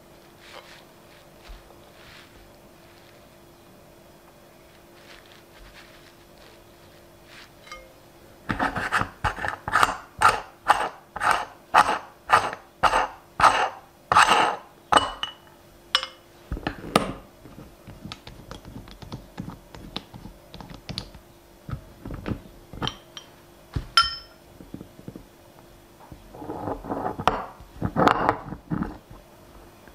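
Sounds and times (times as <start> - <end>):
meat grinder scraping strokes: 8.5 - 14.7.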